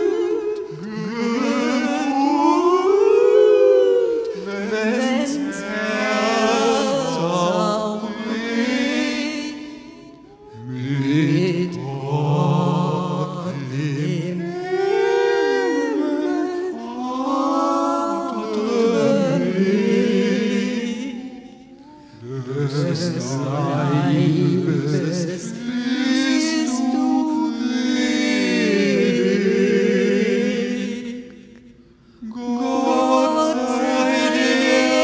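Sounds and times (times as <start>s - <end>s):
low voices chanting: 0.0s - 35.0s.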